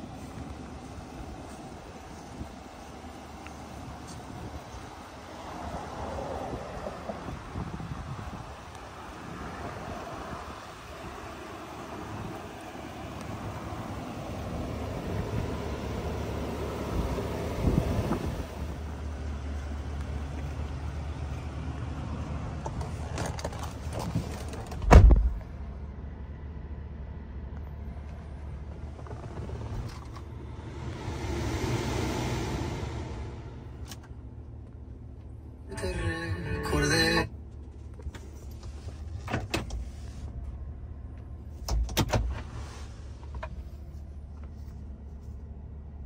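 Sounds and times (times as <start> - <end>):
low engine rumble: 0.0 - 46.0
wind noise on microphone: 6.4 - 11.2, 17.6 - 18.6
truck door shutting: 24.6 - 25.4.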